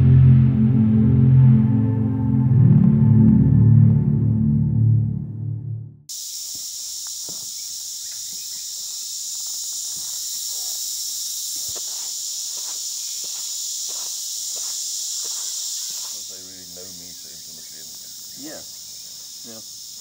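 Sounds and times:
high-pitched insect chorus: 0:06.1 - 0:20.0.

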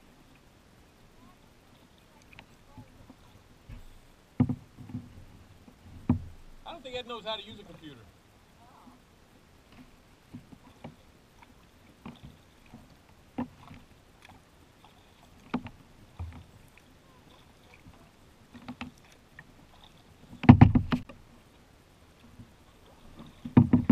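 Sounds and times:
paddle splashing water: 0:00.0 - 0:23.9
paddle knocking against hull: 0:02.3 - 0:06.7, 0:09.7 - 0:21.3, 0:22.2 - 0:23.9.

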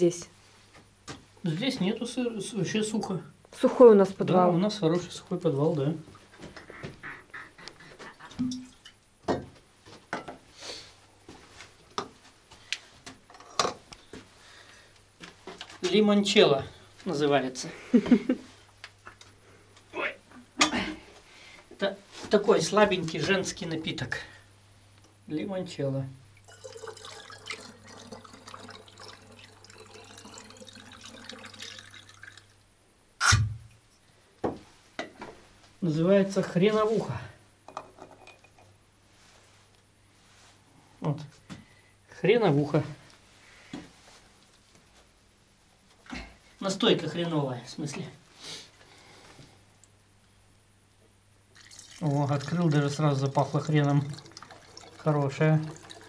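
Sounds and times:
glass bottles knocking and clinking: 0:08.4 - 0:09.5, 0:26.5 - 0:27.7, 0:37.7 - 0:38.7
liquid pouring through a funnel: 0:26.4 - 0:32.6, 0:51.5 - 0:56.0.

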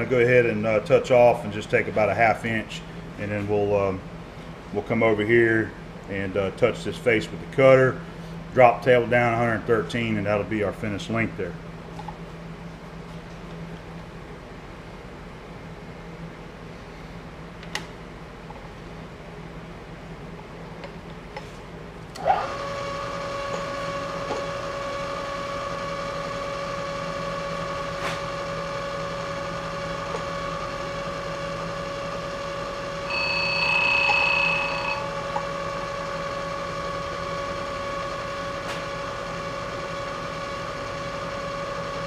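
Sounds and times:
milling machine spindle whine: 0:22.2 - 0:42.0
high-pitched squeal: 0:33.1 - 0:35.3.

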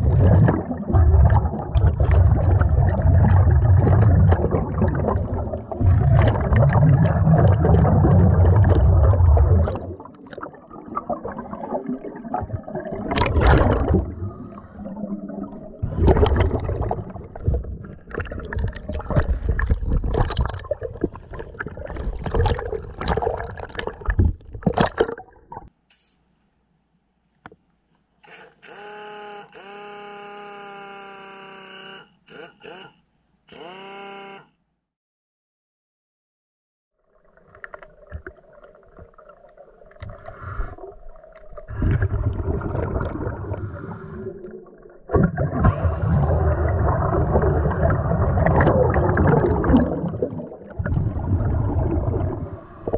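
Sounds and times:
underwater bubbling with deep rumble: 0:00.0 - 0:25.7, 0:37.0 - 0:52.9
irregular bubbling and water noise: 0:00.0 - 0:25.8, 0:36.9 - 0:52.9.

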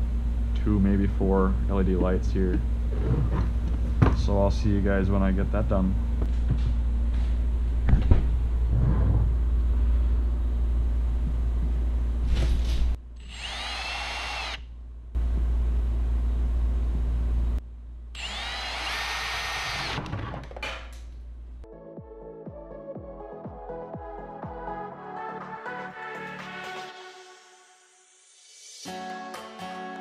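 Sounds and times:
steady low rumble: 0:00.0 - 0:12.3
cordless drill whining: 0:13.2 - 0:14.6, 0:18.2 - 0:20.0.

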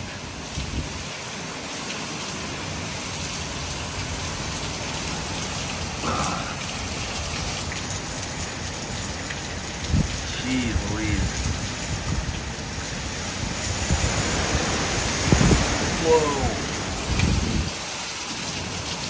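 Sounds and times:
heavy rain pouring: 0:00.0 - 0:19.0
wind rumbling: 0:09.5 - 0:18.8.

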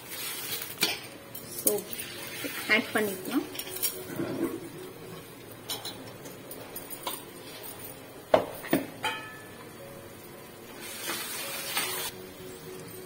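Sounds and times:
spices sizzling in pot: 0:00.0 - 0:13.0
steel utensils clanking on pot: 0:00.5 - 0:04.6, 0:05.7 - 0:09.5.

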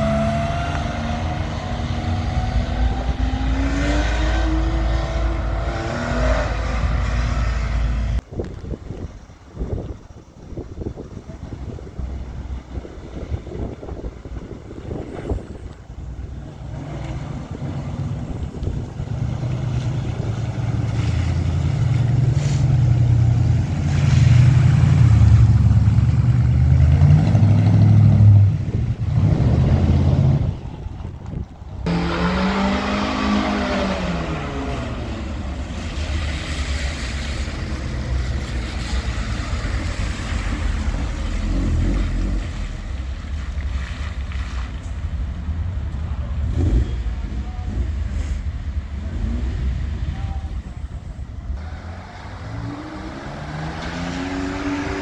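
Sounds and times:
car engines pulling away: 0:00.0 - 0:10.3, 0:10.9 - 0:55.0
engine pitch rising and falling: 0:24.8 - 0:35.4.

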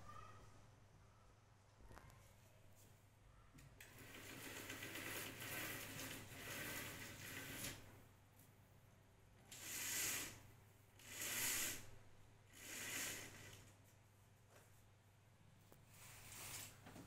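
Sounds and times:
fabric blind hissing down: 0:03.8 - 0:07.9, 0:09.5 - 0:13.8, 0:15.9 - 0:16.9.

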